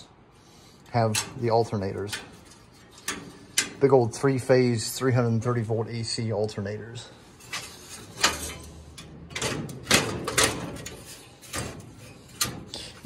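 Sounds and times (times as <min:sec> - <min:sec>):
knocks and scrapes on panels: 0:01.1 - 0:03.9, 0:07.4 - 0:13.0.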